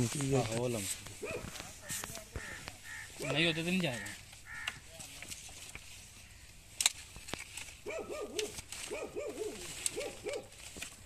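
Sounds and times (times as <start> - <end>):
dry branches crackling underfoot: 0.0 - 11.0
branch snapping: 6.7 - 11.0
dove cooing: 7.9 - 10.5.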